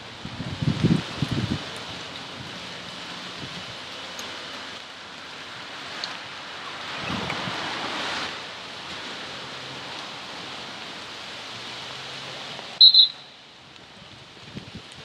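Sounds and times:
steady rushing outdoor noise: 0.0s - 15.0s
referee's whistle blasts: 12.8s - 13.3s.

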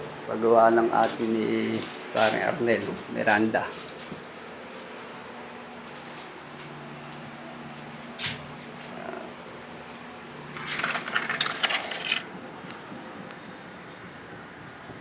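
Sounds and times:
metal hardware clicking and rattling: 10.5s - 12.3s.

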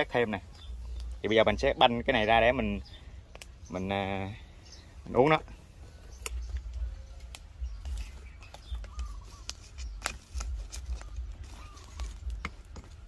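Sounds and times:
sharp knocks and clicks on wood: 12.3s - 13.0s.

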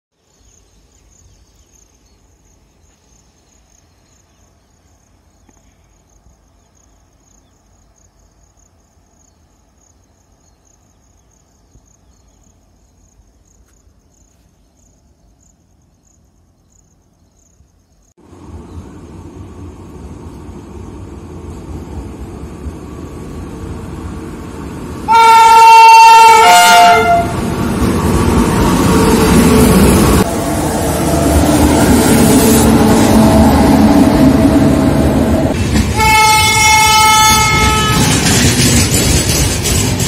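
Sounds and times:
crickets chirping: 0.2s - 25.7s, 26.3s - 40.0s
train rumbling: 17.4s - 40.0s.

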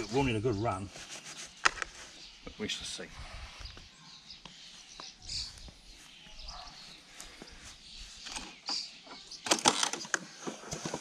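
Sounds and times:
pull cord starter clicking and rattling: 9.4s - 10.2s.

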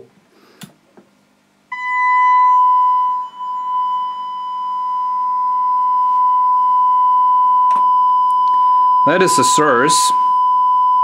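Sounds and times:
sine test tone: 1.7s - 11.0s.

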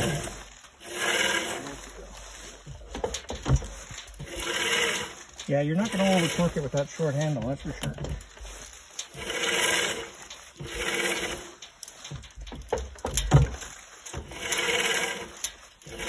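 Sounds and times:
saw blade wheel squealing: 0.0s - 2.4s, 4.2s - 8.3s, 9.0s - 11.6s, 13.8s - 16.0s.

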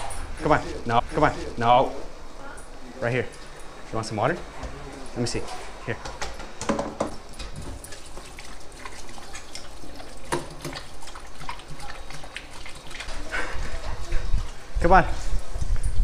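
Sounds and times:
dog lapping water: 7.4s - 14.6s.

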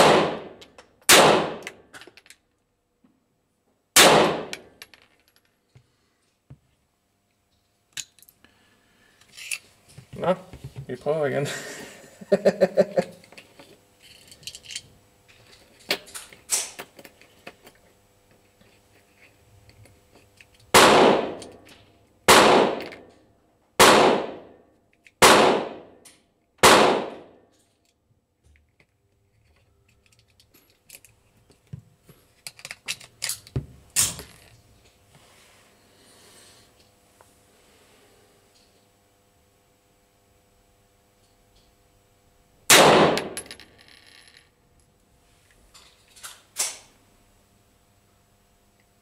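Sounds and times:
pistol shots: 0.0s - 1.7s, 4.0s - 4.7s, 20.7s - 21.5s, 22.3s - 23.0s, 23.8s - 24.5s, 25.2s - 25.9s, 26.6s - 27.3s, 42.7s - 43.4s.

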